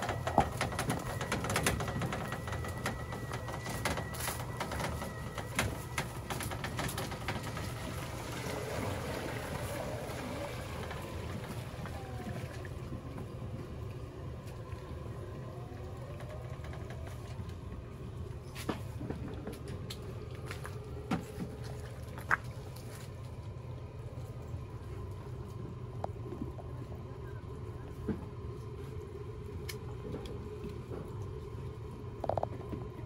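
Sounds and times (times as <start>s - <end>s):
robotic cart drive humming: 0.0s - 33.0s
crackling clicks from wet ground: 29.6s - 31.3s.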